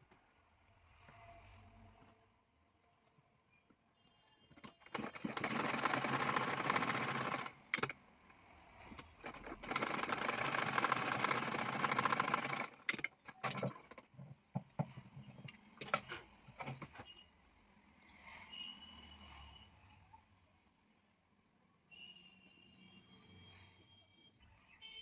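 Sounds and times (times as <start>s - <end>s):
sewing machine stitching: 4.5s - 8.0s, 8.9s - 14.4s.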